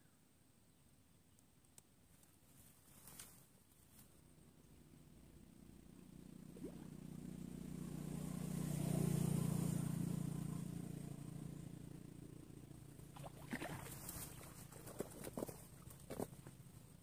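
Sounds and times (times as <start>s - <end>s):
engine passing by: 5.0s - 14.8s.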